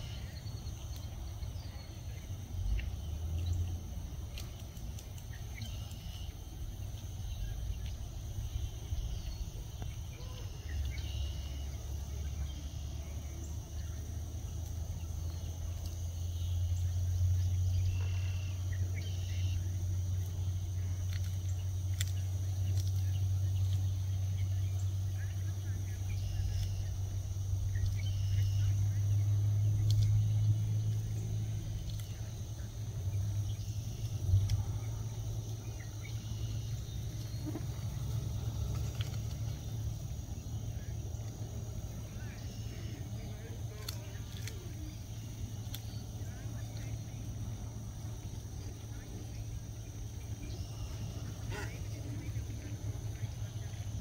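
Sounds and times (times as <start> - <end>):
faint bird chirps: 0.0 - 54.0
high insect drone: 0.0 - 54.0
low rumble: 0.0 - 54.0
vehicle engine humming: 0.0 - 54.0
faint ticks: 29.6 - 32.7.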